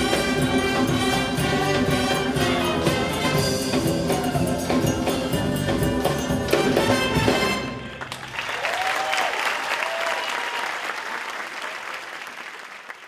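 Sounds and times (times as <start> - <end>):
audience applauding: 7.9 - 13.0
audience cheering: 8.0 - 13.0.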